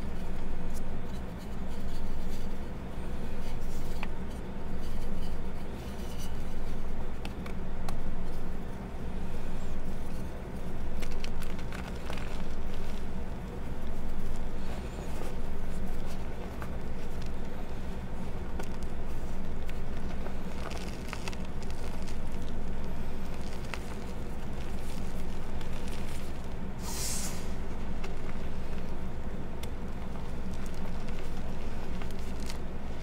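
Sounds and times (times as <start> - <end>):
chalk crushing crunches: 9.2 - 33.0.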